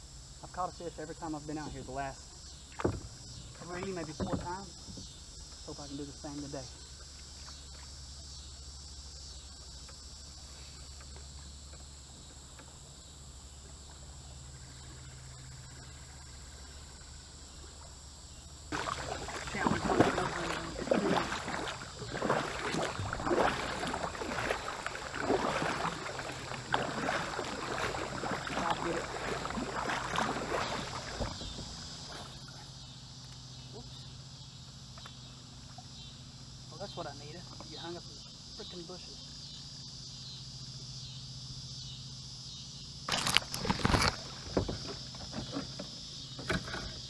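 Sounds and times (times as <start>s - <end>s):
high insect drone: 0.0s - 47.0s
paddle strokes splashing: 1.5s - 32.7s.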